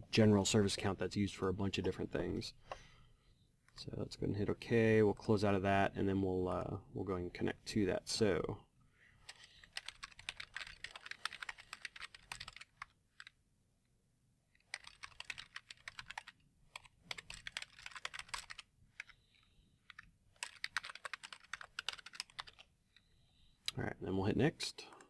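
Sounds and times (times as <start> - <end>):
computer keyboard typing: 9.3 - 13.4, 14.6 - 19.2, 19.8 - 22.7.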